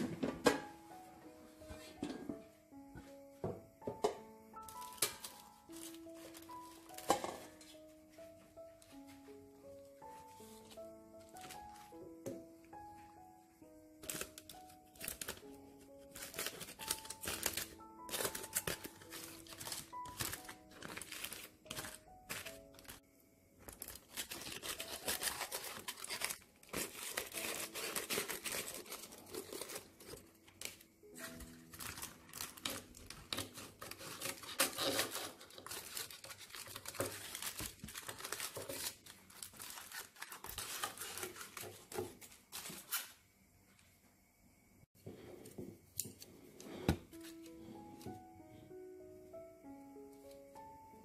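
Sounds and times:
soft background music: 0.0s - 42.8s, 44.6s - 51.0s
aluminium foil crinkling: 4.6s - 7.8s, 10.1s - 12.0s, 14.0s - 23.0s, 23.6s - 43.2s.

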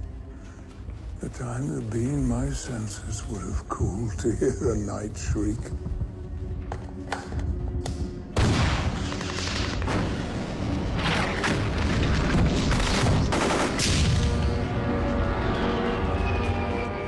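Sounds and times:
film soundtrack music: 0.0s - 17.0s
heavy gunfire with booms: 8.4s - 9.1s, 12.8s - 14.4s.

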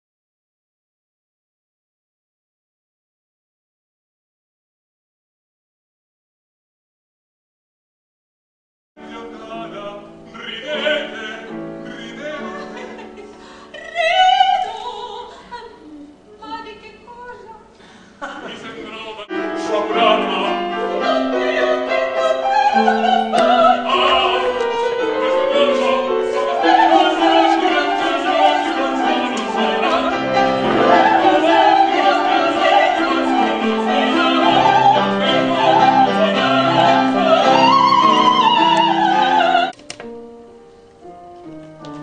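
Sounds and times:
piano chords: 9.0s - 15.0s, 19.2s - 42.0s
operatic singing with vibrato: 9.0s - 17.6s, 18.2s - 39.8s.

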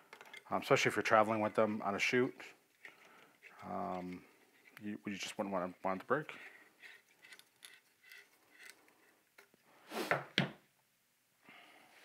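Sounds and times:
handling rustles and clicks: 0.0s - 0.5s, 6.8s - 9.6s.

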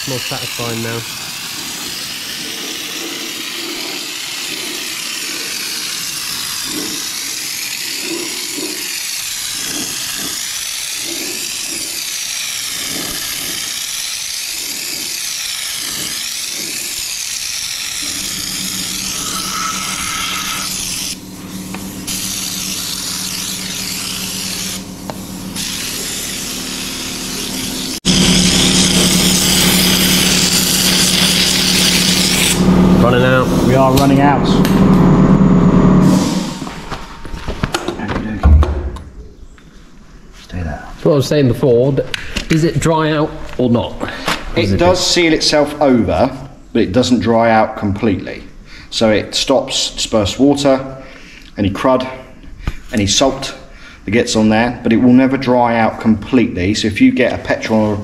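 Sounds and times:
spray gun hissing: 0.0s - 32.6s
steady low hum: 18.0s - 41.0s.

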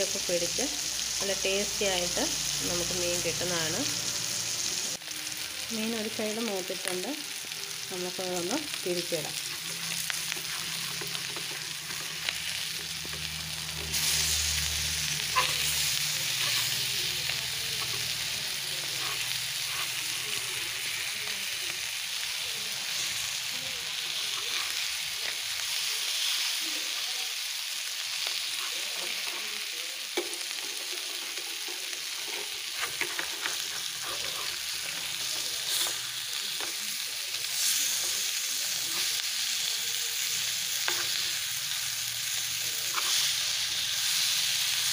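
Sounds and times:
fish sizzling in a frying pan: 0.0s - 44.9s
spatula scraping and tapping pan: 9.5s - 13.2s, 30.2s - 36.0s.

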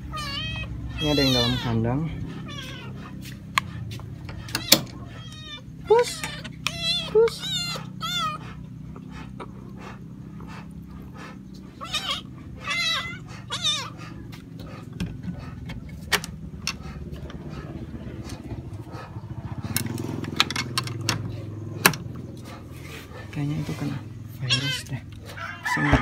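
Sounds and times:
cats meowing: 0.0s - 15.6s, 23.8s - 26.0s.

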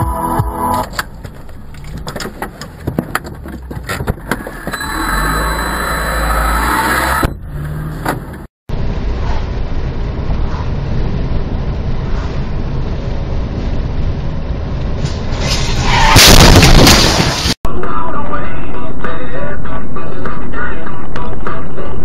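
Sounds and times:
road and engine rumble in car: 0.6s - 16.2s
cars colliding: 14.9s - 17.6s.

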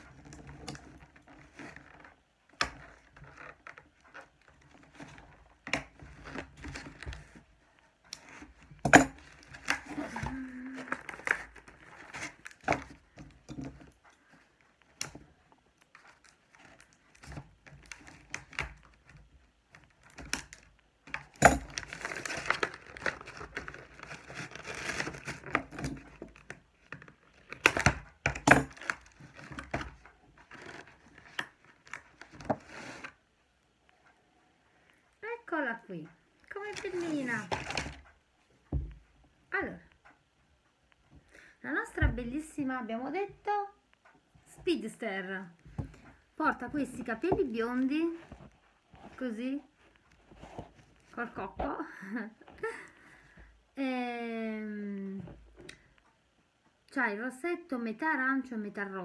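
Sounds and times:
plastic packaging crinkling: 21.7s - 28.0s.

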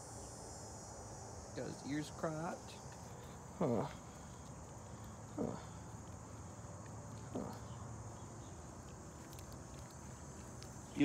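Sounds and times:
insects droning: 0.0s - 11.0s
soft voice-like sounds: 5.3s - 5.9s, 7.3s - 7.8s.

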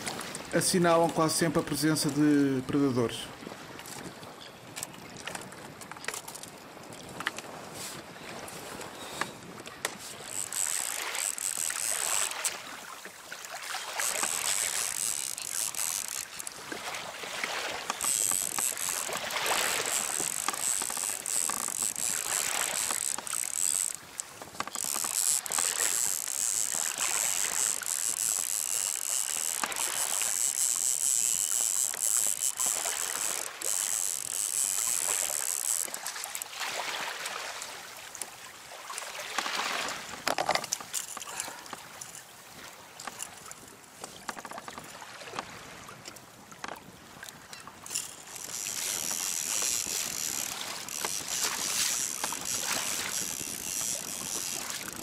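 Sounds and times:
wind: 0.0s - 55.0s
water washing against hull: 3.2s - 55.0s
fishing reel whirring: 9.0s - 37.1s, 39.3s - 42.2s, 47.5s - 55.0s.

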